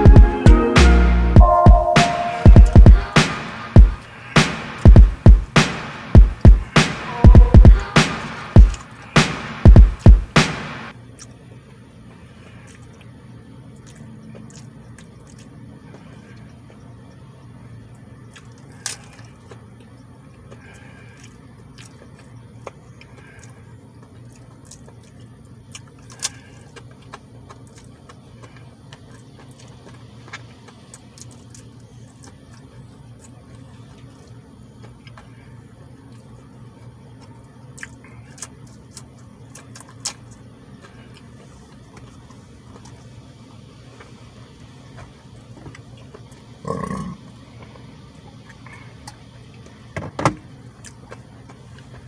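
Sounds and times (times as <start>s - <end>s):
person chewing wetly: 12.1s - 17.2s, 18.0s - 43.2s, 50.6s - 52.0s.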